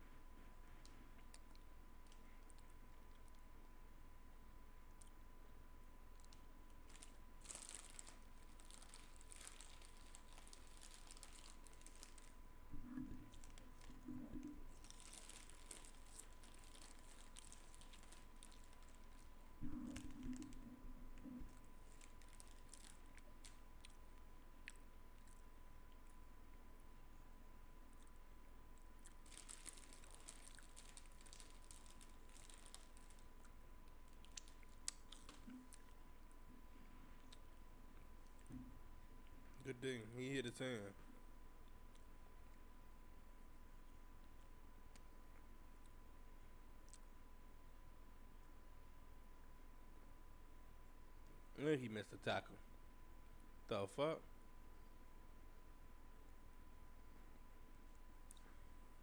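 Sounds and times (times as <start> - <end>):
faint clicking and crackling: 0.0 - 3.8, 4.8 - 39.7, 57.1 - 59.0
faint high hum: 0.0 - 59.0
faint crinkling and rustling: 6.1 - 26.6, 27.9 - 39.7
brief low hum: 12.7 - 14.8, 19.6 - 21.8.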